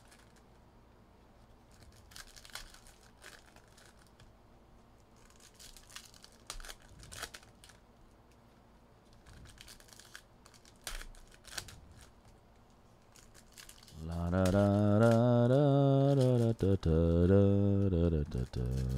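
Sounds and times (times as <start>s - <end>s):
plastic wrapping crinkling and tearing: 1.7s - 4.2s, 5.0s - 7.8s, 9.1s - 12.3s, 13.0s - 17.0s, 18.1s - 18.9s
deep chant-like drone: 13.9s - 18.9s.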